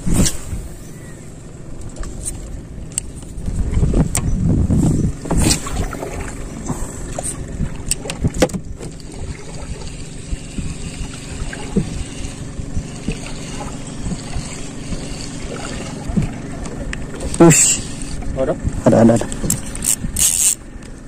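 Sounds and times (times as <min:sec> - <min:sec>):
reel retrieving line: 0:00.0 - 0:21.0
wind: 0:00.0 - 0:21.0
fishing rod handling noise: 0:01.8 - 0:04.3, 0:19.2 - 0:21.0
fishing reel clicks: 0:17.2 - 0:18.2, 0:19.2 - 0:20.6.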